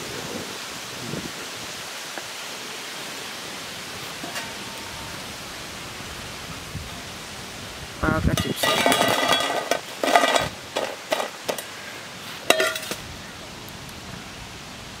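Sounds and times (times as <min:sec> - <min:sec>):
metal knocking on steel plate: 0:08.4 - 0:11.6
chips clattering onto steel plate: 0:08.4 - 0:11.7, 0:12.5 - 0:13.0.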